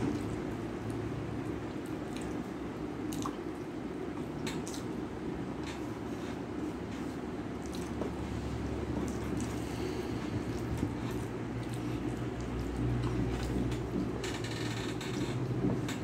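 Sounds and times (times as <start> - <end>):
wet clicks and smacks: 3.0 - 3.6, 4.2 - 5.0, 7.6 - 8.0
chewing: 5.6 - 14.0.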